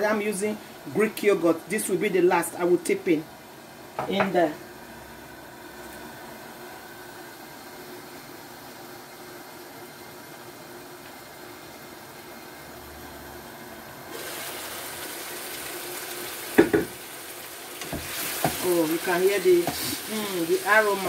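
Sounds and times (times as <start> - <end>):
sauce sizzling in a frying pan: 14.1 - 21.0.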